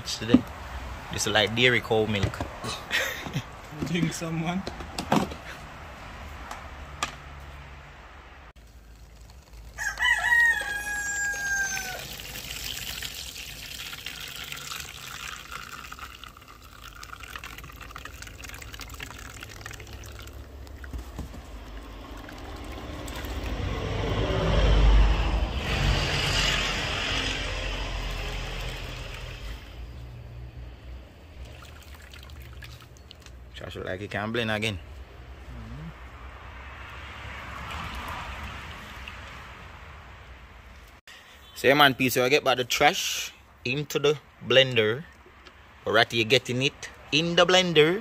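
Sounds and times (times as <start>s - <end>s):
liquid trickling and splashing: 8.6s - 23.6s, 28.0s - 29.9s, 31.3s - 33.5s, 37.4s - 39.7s
rooster crowing: 9.8s - 12.4s.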